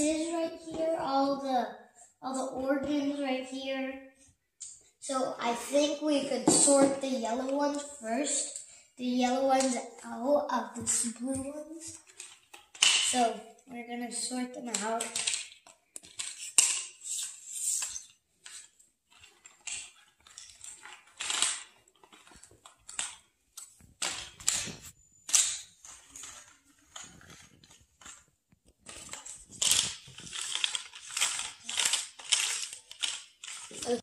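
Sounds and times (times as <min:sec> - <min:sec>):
cardboard pieces scraping on wood floor: 0:25.8 - 0:34.0.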